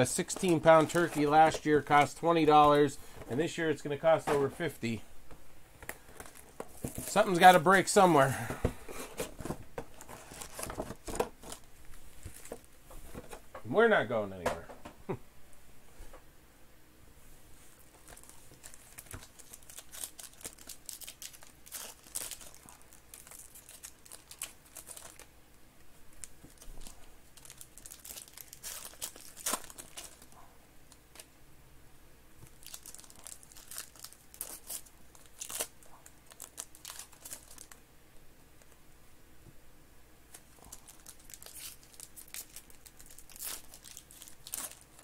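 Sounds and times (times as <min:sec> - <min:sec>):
foil wrappers tearing and crinkling: 0:00.0 - 0:02.9, 0:09.9 - 0:12.6, 0:18.0 - 0:25.3, 0:26.2 - 0:30.3, 0:32.4 - 0:37.8, 0:40.3 - 0:45.0.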